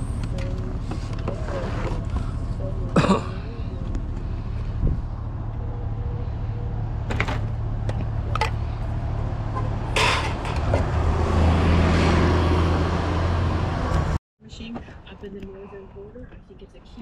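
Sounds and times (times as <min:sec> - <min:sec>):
scrap clattering into truck bed: 0:09.9 - 0:10.9.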